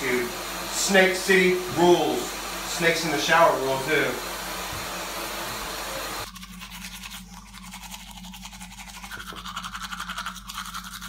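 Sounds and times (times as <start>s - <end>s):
shower water spraying: 0.0s - 7.2s
toothbrush scrubbing teeth: 6.2s - 11.0s.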